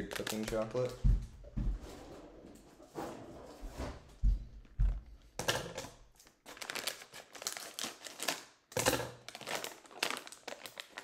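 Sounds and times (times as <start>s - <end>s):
plastic bag crinkling: 0.0s - 1.0s, 6.2s - 11.0s.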